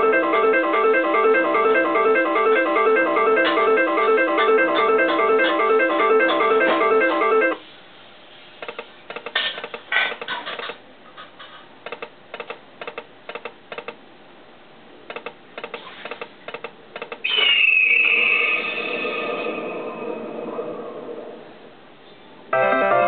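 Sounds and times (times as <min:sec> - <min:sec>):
slot machine reel ticks: 0:00.0 - 0:07.6.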